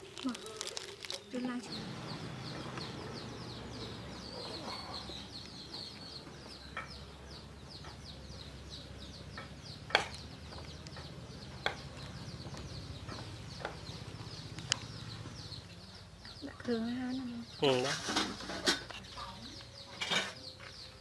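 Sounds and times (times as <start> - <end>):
cleaver chopping on wooden board: 9.9 - 10.2.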